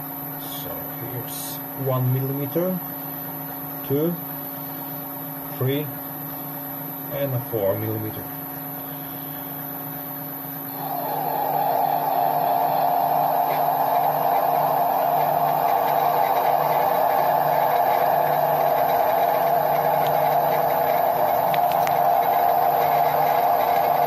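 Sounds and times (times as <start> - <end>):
lathe motor hum: 8.4 - 24.0
lathe tool cutting metal: 10.7 - 24.0.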